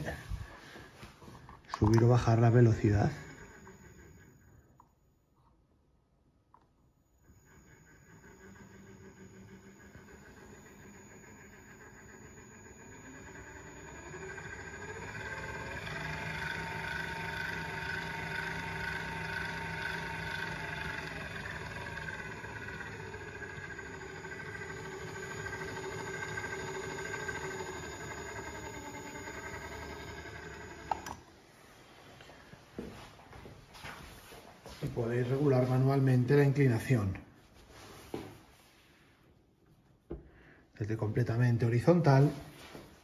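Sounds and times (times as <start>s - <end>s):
electric motor whine: 0.0s - 1.1s, 1.8s - 4.9s, 7.0s - 31.3s.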